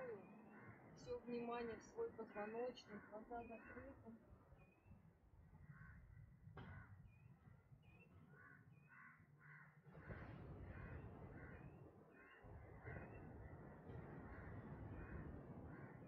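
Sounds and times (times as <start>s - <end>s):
crows cawing: 0.0s - 1.4s, 2.2s - 4.2s, 8.3s - 16.0s.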